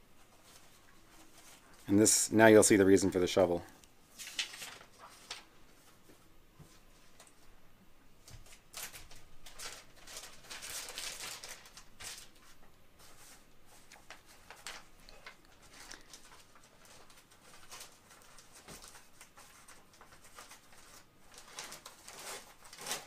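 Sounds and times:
paper rustling: 0:00.2 - 0:07.5, 0:08.2 - 0:23.0
plastic bag crinkling: 0:00.4 - 0:05.9, 0:08.3 - 0:23.0.

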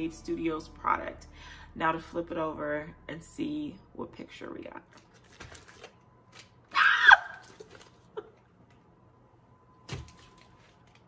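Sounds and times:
woman squealing with delight: 0:06.7 - 0:07.6.

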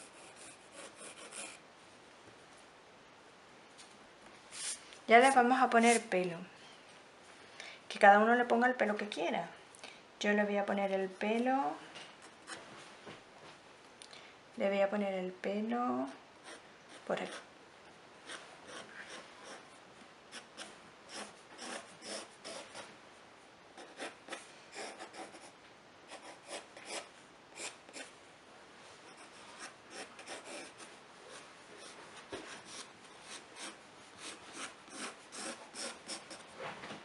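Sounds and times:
pencil scratching on paper: 0:00.0 - 0:01.6, 0:16.4 - 0:17.5, 0:18.2 - 0:19.6, 0:20.3 - 0:22.9, 0:23.8 - 0:28.1, 0:29.1 - 0:36.5.

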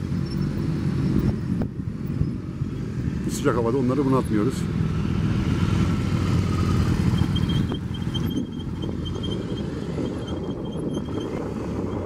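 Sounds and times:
motorcycle engines rumbling: 0:00.0 - 0:12.0
wind on microphone: 0:07.0 - 0:12.0.

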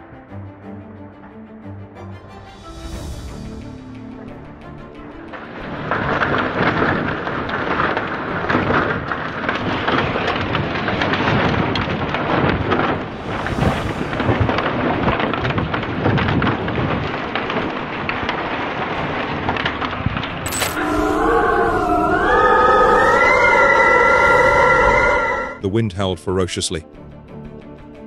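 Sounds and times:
tornado wind blasting: 0:02.5 - 0:25.6
debris clattering and rattling: 0:03.3 - 0:20.8.

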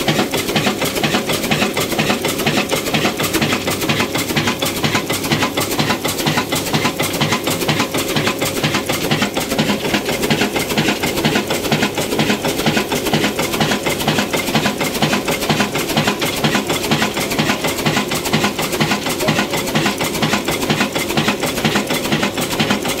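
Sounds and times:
diesel engine clattering: 0:00.0 - 0:23.0.

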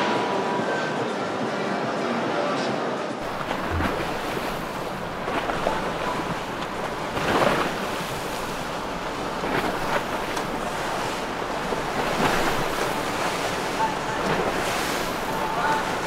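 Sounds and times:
waves and rushing water: 0:00.0 - 0:16.0
boat engine running: 0:03.2 - 0:16.0.

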